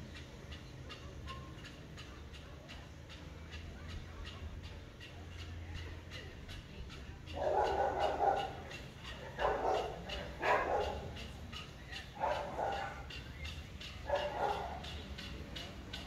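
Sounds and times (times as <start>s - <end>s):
dog barking: 7.3s - 11.3s, 12.1s - 13.2s, 14.0s - 15.0s.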